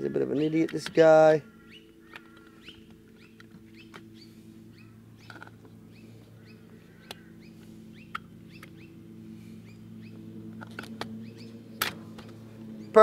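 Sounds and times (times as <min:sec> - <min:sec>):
small birds chirping: 0:00.0 - 0:13.0
steady low hum: 0:00.0 - 0:13.0
sharp clicks: 0:00.6 - 0:01.0.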